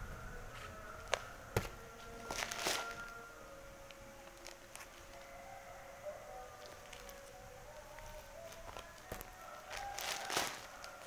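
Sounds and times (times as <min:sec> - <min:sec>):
faint steady whine: 0:00.0 - 0:11.0
plastic packaging crinkling: 0:02.1 - 0:03.2, 0:03.8 - 0:05.4, 0:06.4 - 0:11.0.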